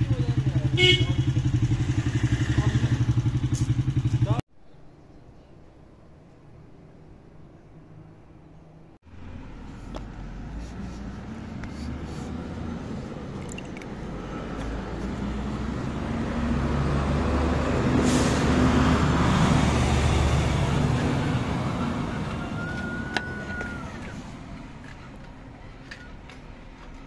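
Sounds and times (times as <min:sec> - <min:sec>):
vehicle driving past: 0:01.3 - 0:04.4, 0:09.1 - 0:25.0.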